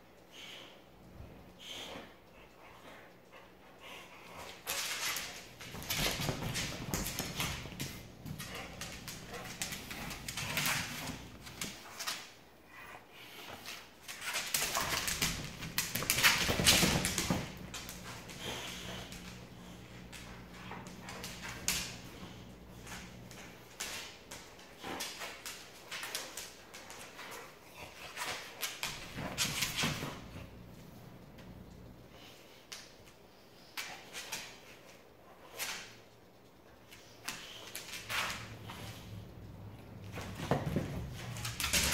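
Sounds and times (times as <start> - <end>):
toy scuffing on hard floor: 4.2 - 12.4, 39.9 - 41.9
dog claws clicking on floor: 4.3 - 12.4, 13.5 - 30.4, 36.8 - 41.9.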